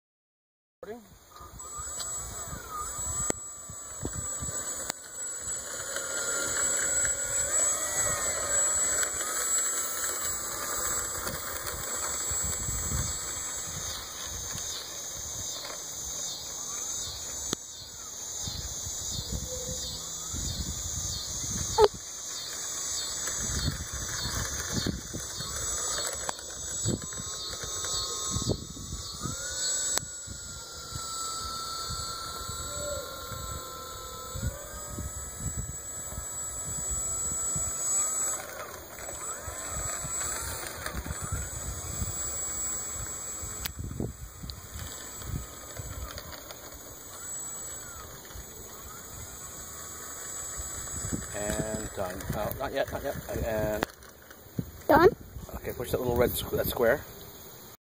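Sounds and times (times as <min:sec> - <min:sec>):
electric motor and propeller whining: 0:00.8 - 0:57.8
wind rumble on microphone: 0:11.1 - 0:15.4, 0:18.4 - 0:22.0, 0:23.2 - 0:25.6, 0:28.3 - 0:29.4, 0:34.3 - 0:37.8, 0:43.0 - 0:46.4, 0:50.8 - 0:53.8.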